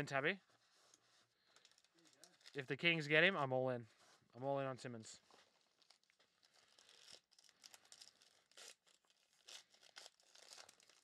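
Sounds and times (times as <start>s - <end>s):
foil wrapper crinkling and tearing: 0.8s - 2.6s, 5.3s - 11.0s.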